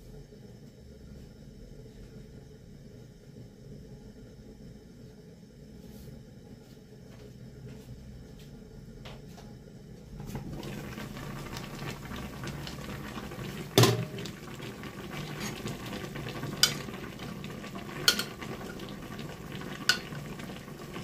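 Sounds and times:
fish broth bubbling and sizzling: 0:10.2 - 0:21.0
metal spoon clinking against pot: 0:18.1 - 0:18.4.

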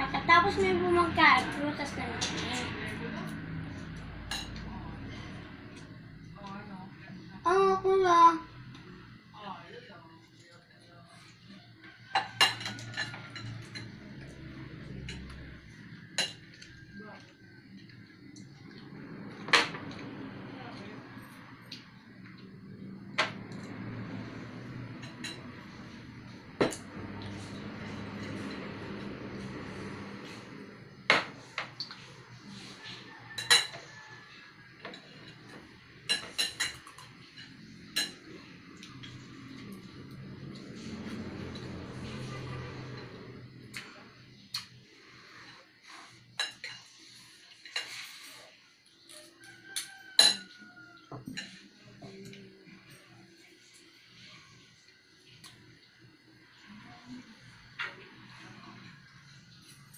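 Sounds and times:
cutlery clinking against plates: 0:02.2 - 0:06.0, 0:11.8 - 0:18.8, 0:25.0 - 0:29.6, 0:32.8 - 0:43.8, 0:45.4 - 0:48.4, 0:49.0 - 0:52.4
cutlery clinking on ceramic plates: 0:11.9 - 0:16.9, 0:33.0 - 0:34.2, 0:34.8 - 0:38.3, 0:46.4 - 0:48.1, 0:49.2 - 0:52.3.

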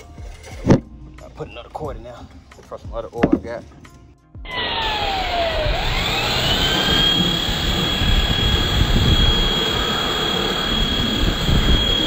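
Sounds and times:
pressure washer whine: 0:04.5 - 0:12.0.

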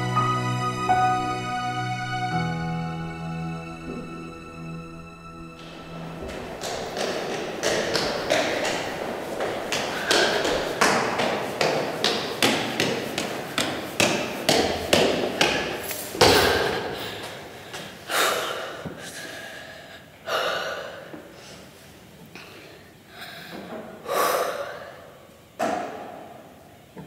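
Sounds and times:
footsteps running down stone stairs: 0:05.6 - 0:18.0
loud thud: 0:16.2 - 0:17.0.

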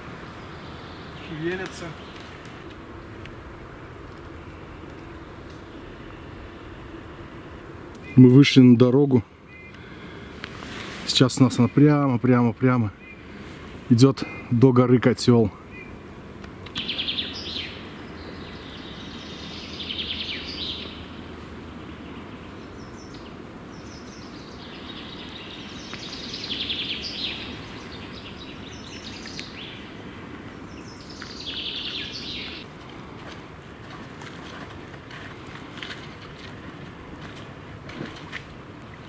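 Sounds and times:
low outdoor background noise: 0:00.0 - 0:39.0
songbird singing trilled phrases: 0:08.0 - 0:08.6, 0:09.4 - 0:09.9, 0:15.6 - 0:16.0, 0:16.7 - 0:21.3, 0:21.9 - 0:30.0, 0:30.6 - 0:32.6.

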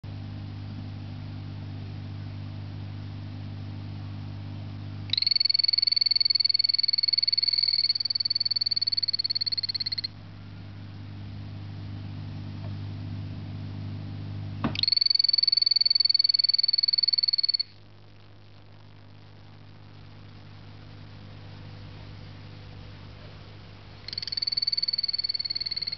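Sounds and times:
steady low hum: 0:00.0 - 0:25.9
frog trilling: 0:05.1 - 0:10.1, 0:14.7 - 0:17.8, 0:24.0 - 0:25.9.

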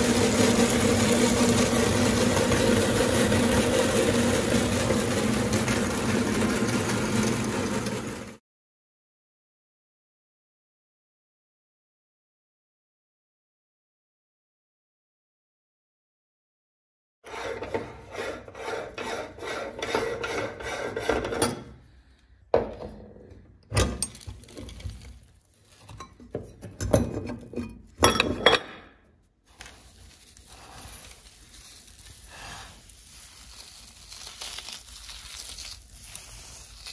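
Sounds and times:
coffee beans crunching in grinder: 0:00.0 - 0:08.4, 0:24.1 - 0:25.8, 0:29.5 - 0:36.9
coffee grounds rustling: 0:24.1 - 0:25.9, 0:29.5 - 0:36.9
grinder plate knocks and clinks: 0:25.9 - 0:28.9.

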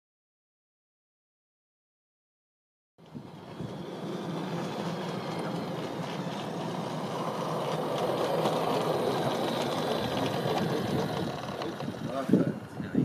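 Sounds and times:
model train running on track: 0:03.0 - 0:13.0.

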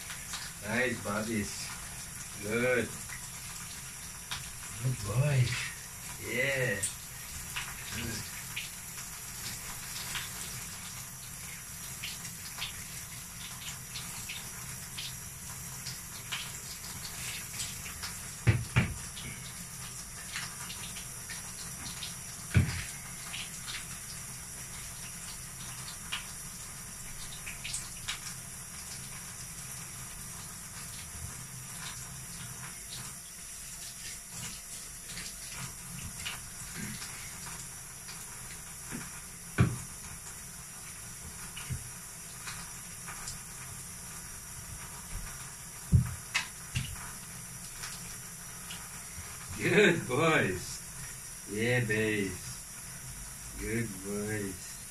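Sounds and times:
shower spraying water: 0:00.0 - 0:54.9
small splashes and clicks: 0:06.8 - 0:26.4, 0:27.1 - 0:29.6, 0:30.8 - 0:39.2, 0:44.8 - 0:49.6
loud knocks: 0:18.4 - 0:19.0.

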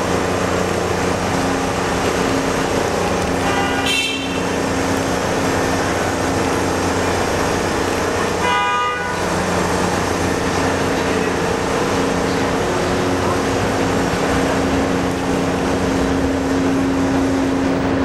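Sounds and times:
locomotive engine drone: 0:00.0 - 0:18.0
locomotive horn toot: 0:03.4 - 0:04.6, 0:08.3 - 0:09.4.

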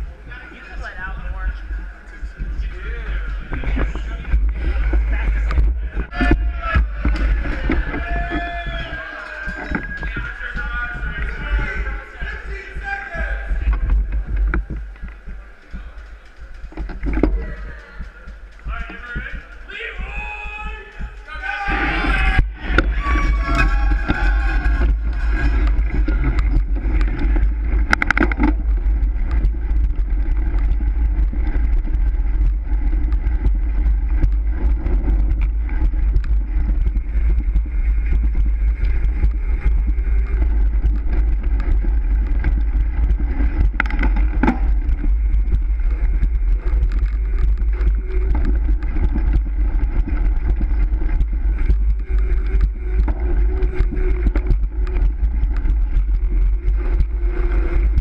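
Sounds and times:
wind rush on microphone: 0:00.0 - 0:16.0, 0:16.7 - 0:58.0
bicycle rolling on concrete: 0:00.0 - 0:58.0.

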